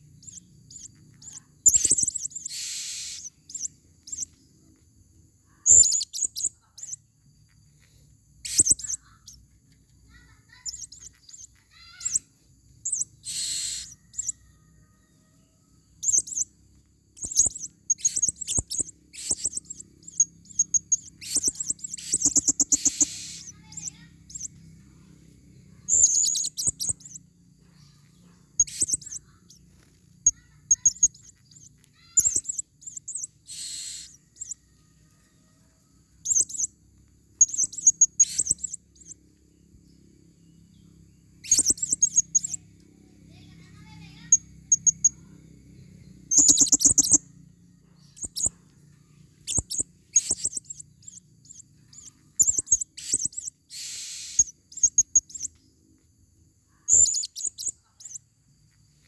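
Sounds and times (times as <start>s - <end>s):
parrots chirping: 0.0s - 4.8s, 5.5s - 7.0s, 8.4s - 9.4s, 10.1s - 14.7s, 16.0s - 16.5s, 17.1s - 25.1s, 25.7s - 34.7s, 36.2s - 36.7s, 37.3s - 39.2s, 41.4s - 42.6s, 43.4s - 45.2s, 46.2s - 47.3s, 48.0s - 48.6s, 49.3s - 55.6s, 56.8s - 58.2s
parrot raspy shrieks: 1.2s - 4.2s, 8.4s - 9.2s, 10.2s - 14.5s, 17.4s - 19.8s, 21.0s - 24.4s, 30.3s - 34.6s, 51.9s - 54.6s.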